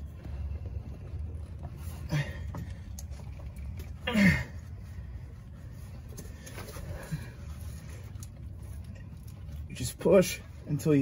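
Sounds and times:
steady low hum: 0.0 - 11.0
person grunting: 4.0 - 4.6.

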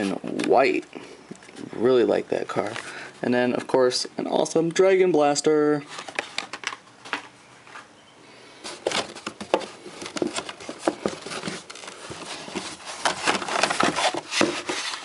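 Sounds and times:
plastic packaging crinkling and scraping: 8.6 - 15.0.

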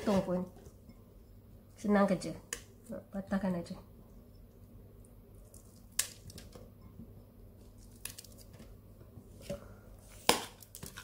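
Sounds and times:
chillies snapping: 5.4 - 6.6, 7.8 - 8.6.

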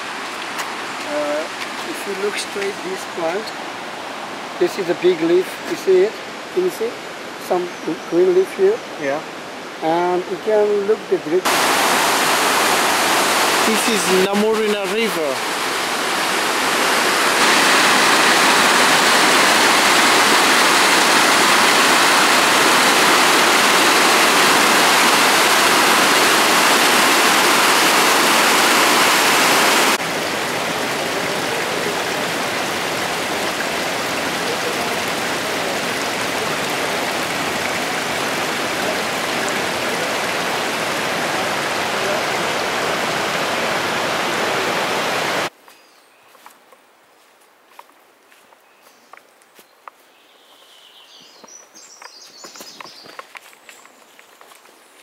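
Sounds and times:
fast-flowing river water: 11.4 - 45.5.

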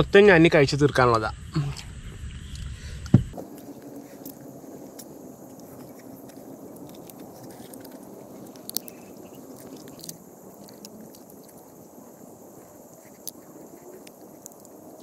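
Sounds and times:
low background noise: 3.2 - 15.0
crab shell cracking: 3.3 - 15.0
person chewing and biting: 3.3 - 15.0.

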